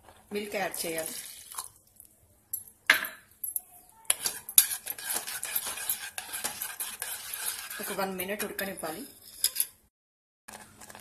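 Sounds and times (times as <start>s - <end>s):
spoon scraping pan while stirring: 4.1s - 9.9s.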